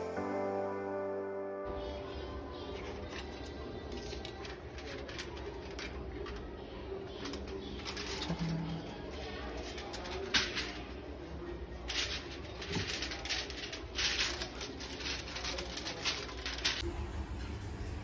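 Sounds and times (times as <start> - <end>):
aluminium foil crinkling: 2.8 - 6.5, 7.1 - 16.8.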